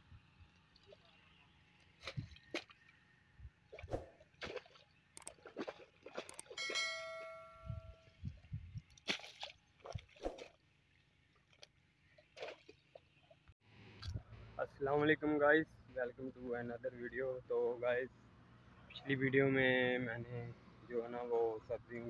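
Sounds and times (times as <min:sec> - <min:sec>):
hoe chopping wet mud: 0:03.7 - 0:06.6, 0:09.0 - 0:10.6
bright bell chime: 0:06.6 - 0:08.1.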